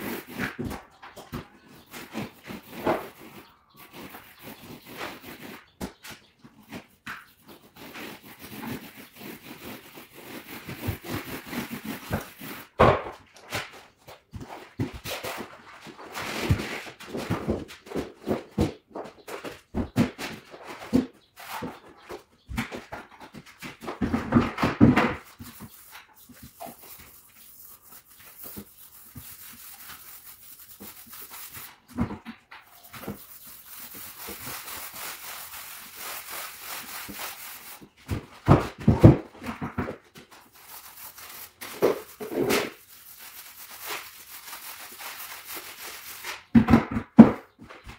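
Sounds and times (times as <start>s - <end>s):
paper rustling and crinkling: 38.7s - 46.5s.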